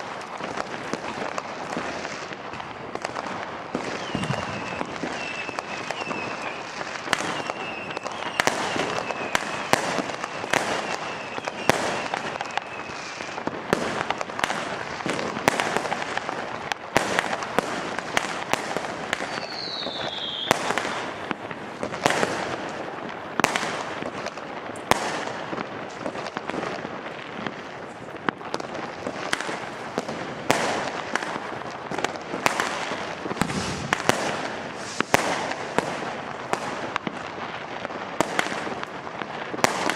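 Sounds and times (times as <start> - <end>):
fireworks and firecrackers banging: 0.0 - 39.9
whistle falling in pitch: 4.0 - 6.6.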